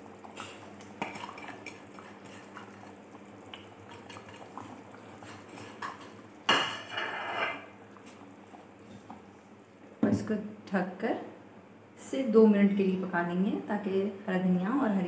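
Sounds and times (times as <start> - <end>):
kitchenware clattering: 5.6 - 7.7.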